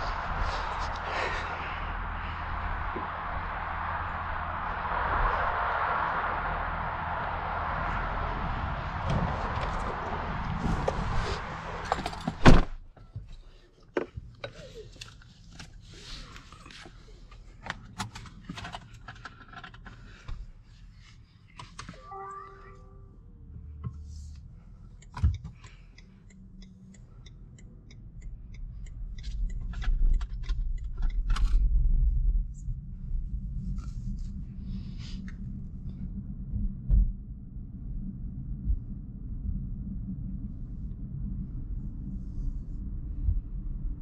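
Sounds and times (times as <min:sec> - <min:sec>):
low rumble: 0:00.0 - 0:13.6, 0:19.9 - 0:44.0
short electronic tone: 0:22.0 - 0:23.2
small clicks and knocks in car cabin: 0:25.0 - 0:25.8.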